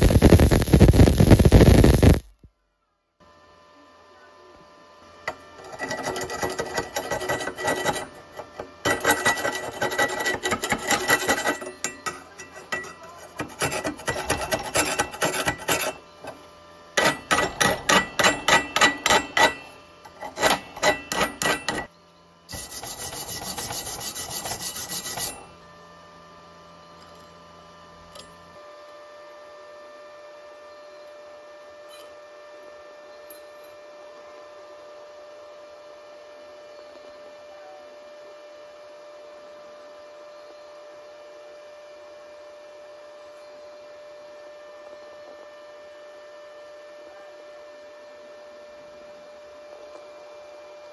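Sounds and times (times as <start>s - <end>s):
faint steady hum: 0.0s - 50.9s
wire brush scrubbing metal: 5.3s - 21.9s, 22.5s - 25.6s.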